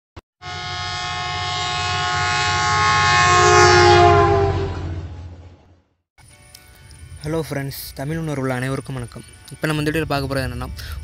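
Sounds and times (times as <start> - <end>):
many-toned horn: 0.4 - 5.5
low rumble: 4.0 - 5.9.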